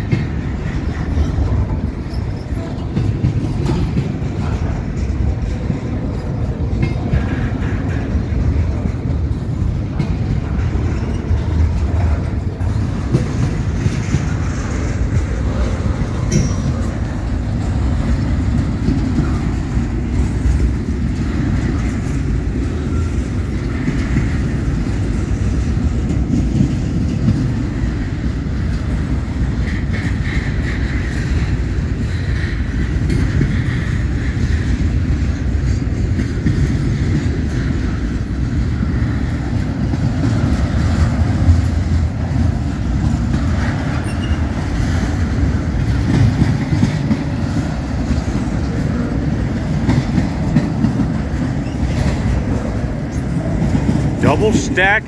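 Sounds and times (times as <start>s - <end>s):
freight train rumbling past: 0.0s - 55.0s
wheels clacking over rail joints: 0.0s - 55.0s.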